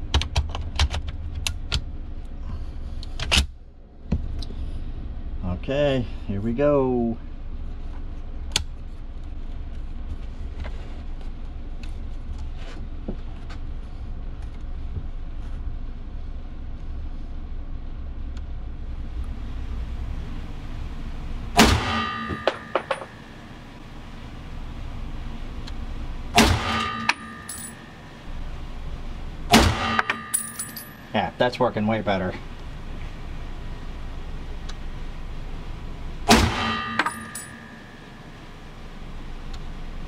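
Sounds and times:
steady low rumble: 1.0s - 40.0s
rifle shots: 21.6s - 22.8s, 26.4s - 27.5s, 29.5s - 30.4s, 36.3s - 37.5s
ejected brass clinking: 21.6s - 23.6s, 26.4s - 28.2s, 29.5s - 31.2s, 36.3s - 38.2s.

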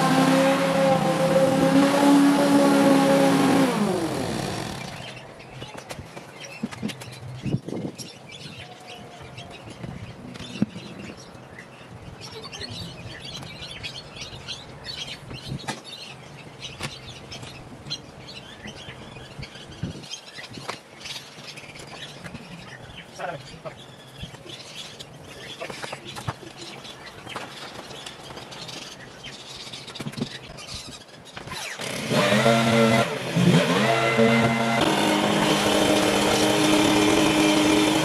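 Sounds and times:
engine: 0.0s - 5.2s, 31.4s - 38.0s
small birds chirping: 4.0s - 32.0s.

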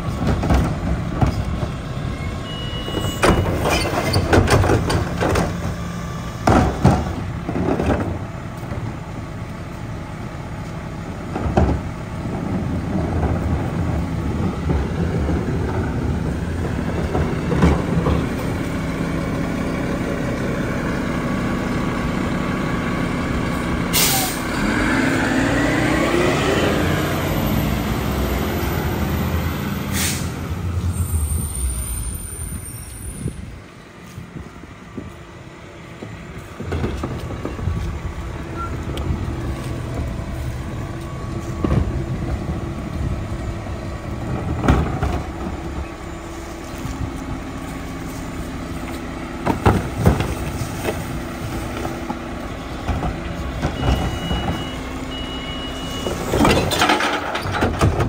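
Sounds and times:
diesel engine running: 0.0s - 58.0s
air brake hissing: 23.9s - 24.5s, 29.9s - 33.4s
cart tipper banging: 56.0s - 58.0s.

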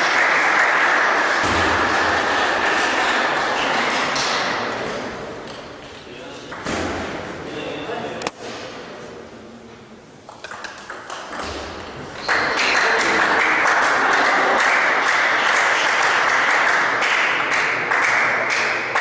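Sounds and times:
spectators applauding: 0.0s - 4.3s, 12.2s - 19.0s
table tennis ball clicking: 10.3s - 11.9s.

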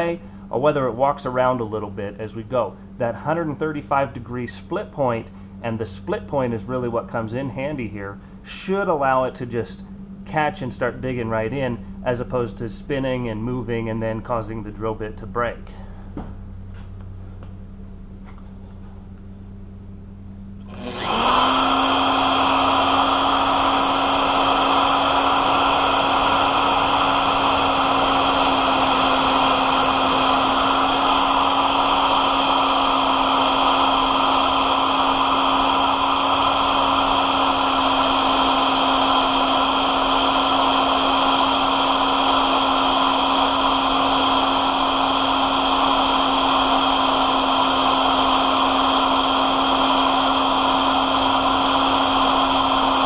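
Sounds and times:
drill boring into steel: 20.7s - 53.0s.

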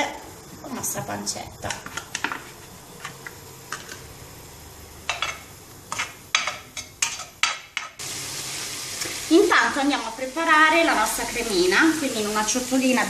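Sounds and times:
faint sizzle of frying: 0.0s - 13.0s
utensil scraping a frying pan: 5.1s - 8.0s.

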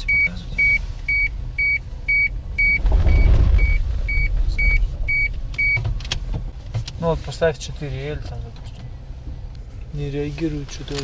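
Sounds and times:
dashboard warning chime beeping: 0.0s - 5.9s
engine and road rumble: 0.0s - 11.0s.

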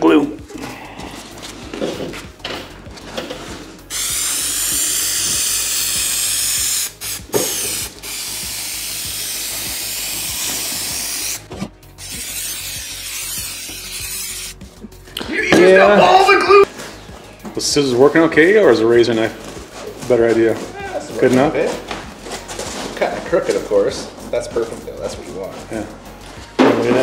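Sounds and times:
aerosol spray hissing: 3.9s - 14.7s.

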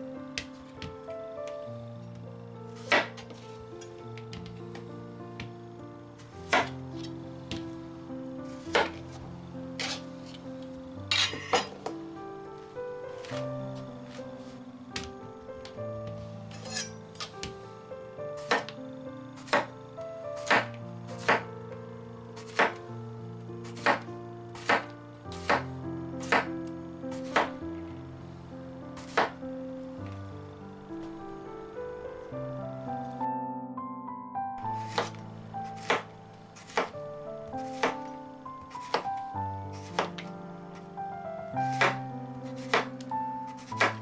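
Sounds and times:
background music with held notes: 0.0s - 44.0s
knife chopping on cutting board: 2.8s - 3.3s, 6.5s - 6.7s, 8.7s - 9.0s, 18.5s - 18.7s, 19.5s - 19.7s, 20.4s - 21.4s, 22.4s - 22.8s, 23.7s - 24.0s, 24.6s - 25.6s, 26.2s - 26.5s, 29.0s - 29.4s, 34.8s - 35.2s, 35.8s - 37.0s, 37.7s - 38.1s, 38.7s - 39.1s, 41.7s - 42.0s, 42.6s - 42.9s, 43.6s - 44.0s.

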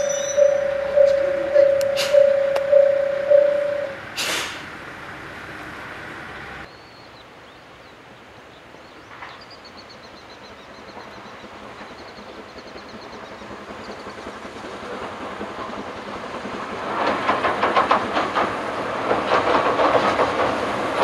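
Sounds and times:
level-crossing bell ringing: 0.0s - 4.0s
small birds chirping: 0.0s - 4.0s
hiss of air: 4.0s - 4.9s.

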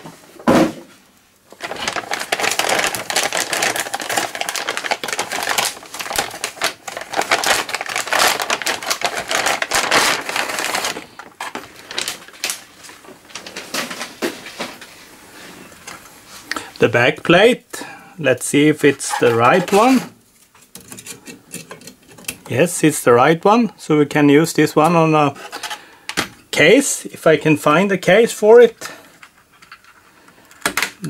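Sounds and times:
plastic bag crinkling: 1.5s - 14.8s, 18.6s - 20.4s.

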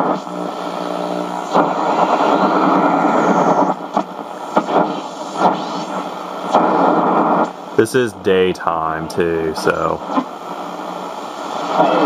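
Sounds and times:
radio static rushing noise: 0.0s - 12.0s
person talking: 7.8s - 10.0s.

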